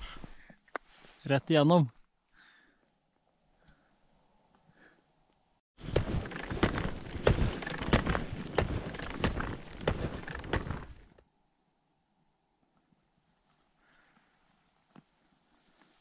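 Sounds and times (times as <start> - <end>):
rustling and scraping on snow: 5.8 - 11.2, 12.9 - 16.0.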